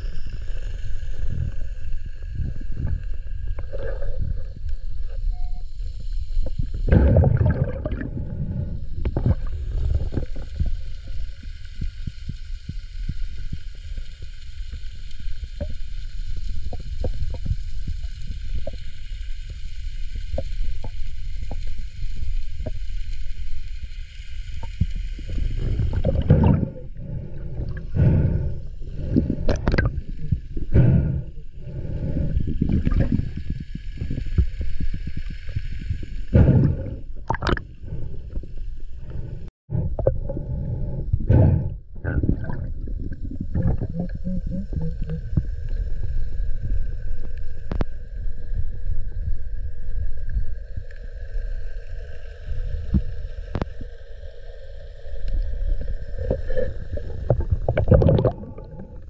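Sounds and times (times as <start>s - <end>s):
underwater rumble of water: 0.0s - 59.0s
water churning surges: 6.9s - 10.5s.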